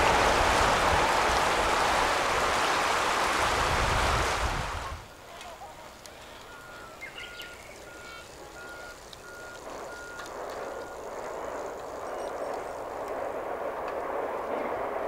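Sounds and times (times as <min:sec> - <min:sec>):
rushing rumble: 0:00.0 - 0:05.3, 0:05.9 - 0:15.0
reversing alarm beeping: 0:06.2 - 0:12.8.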